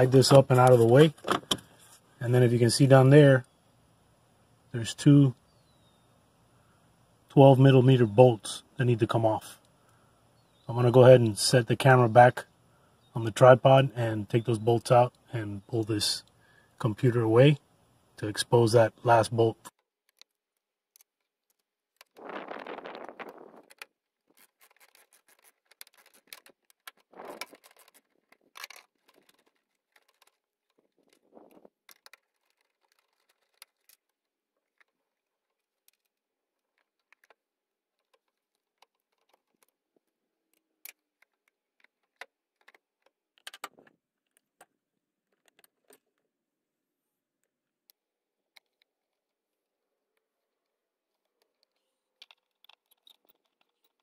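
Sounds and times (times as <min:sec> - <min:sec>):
rustling and clatter: 0:21.0 - 0:46.2, 0:50.1 - 0:54.0.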